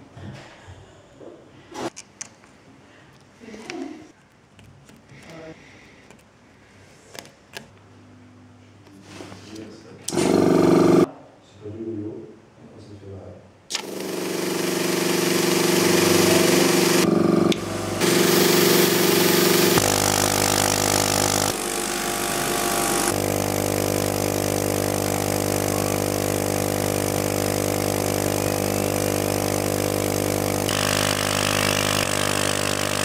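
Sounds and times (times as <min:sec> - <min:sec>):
end mill cutting aluminium: 0:10.1 - 0:11.1, 0:13.8 - 0:33.0
router spindle whine: 0:10.1 - 0:11.1, 0:13.8 - 0:33.0.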